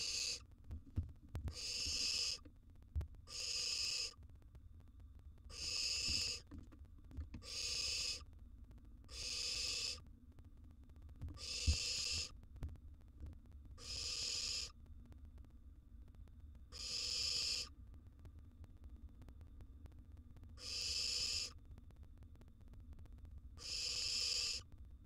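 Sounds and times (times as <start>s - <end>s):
owl nestlings hissing: 0.0s - 0.4s, 1.5s - 2.4s, 3.3s - 4.2s, 5.5s - 6.5s, 7.4s - 8.2s, 9.1s - 10.0s, 11.4s - 12.3s, 13.8s - 14.8s, 16.7s - 17.7s, 20.6s - 21.6s, 23.6s - 24.7s.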